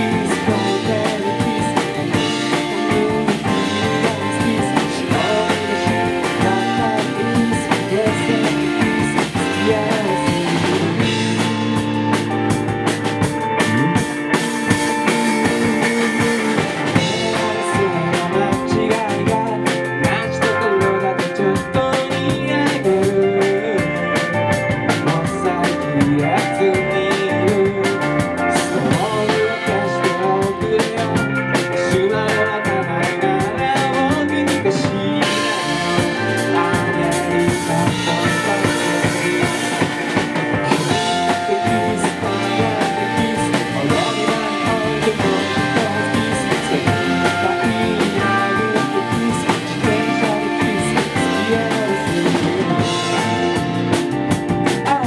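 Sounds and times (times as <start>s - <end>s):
bass guitar: 0.0s - 55.0s
drums: 0.0s - 55.0s
electric guitars: 0.0s - 55.0s.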